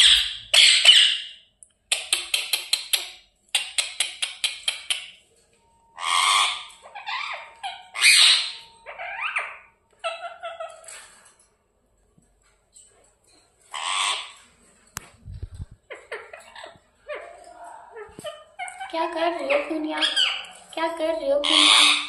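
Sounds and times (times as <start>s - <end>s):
parrot squawking: 0.0s - 1.4s, 6.0s - 11.1s, 13.7s - 14.4s, 15.8s - 20.6s, 21.4s - 22.0s
parrot clicking: 1.6s - 5.2s.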